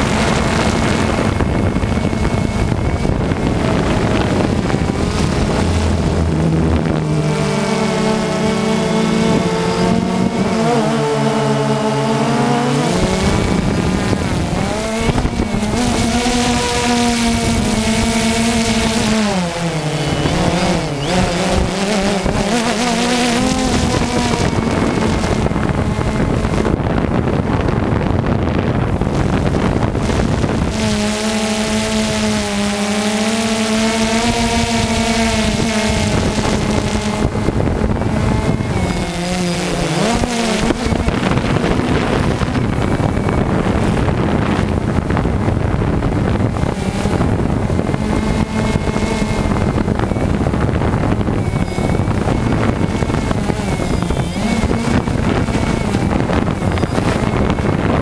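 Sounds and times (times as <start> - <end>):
drone propellers buzzing: 0.0 - 58.0
steady rushing noise: 0.0 - 58.0.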